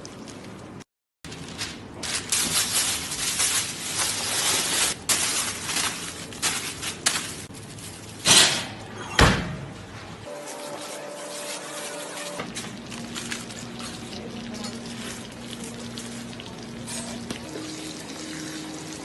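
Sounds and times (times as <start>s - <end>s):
aluminium foil crinkling: 1.3s - 8.3s, 10.3s - 17.3s.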